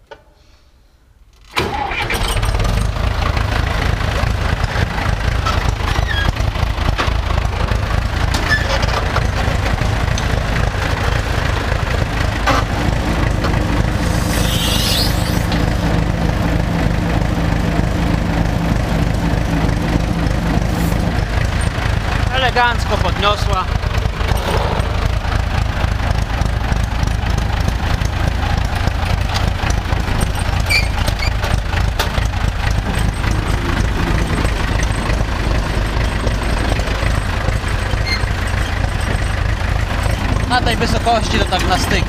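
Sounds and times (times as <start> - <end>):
tractor diesel engine running: 1.5 - 42.0
hydraulic lift: 12.4 - 15.9
short rising squeal: 14.0 - 15.8.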